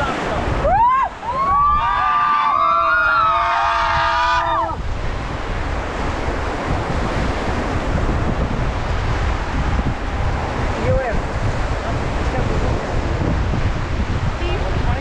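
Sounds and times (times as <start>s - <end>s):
rushing whitewater: 0.0s - 15.0s
wind buffeting microphone: 0.0s - 15.0s
group yelling woooo: 0.6s - 4.8s.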